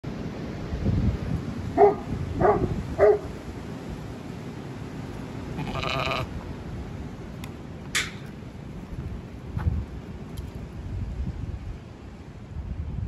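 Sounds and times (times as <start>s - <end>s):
lamb bleating: 5.6s - 6.3s.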